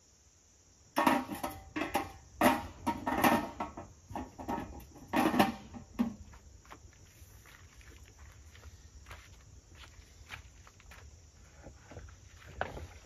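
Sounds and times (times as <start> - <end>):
camp gear knocking and clanking: 0.9 - 6.8, 11.5 - 13.0.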